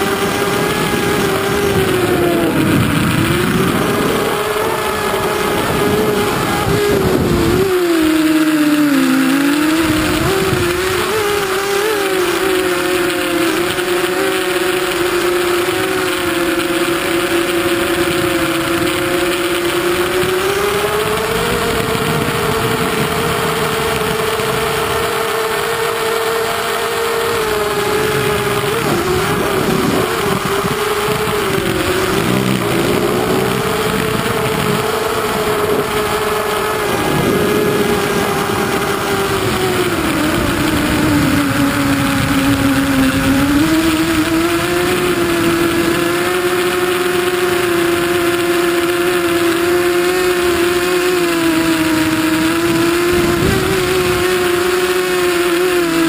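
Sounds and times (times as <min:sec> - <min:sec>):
drone motors and propellers whining: 0:00.0 - 0:56.0.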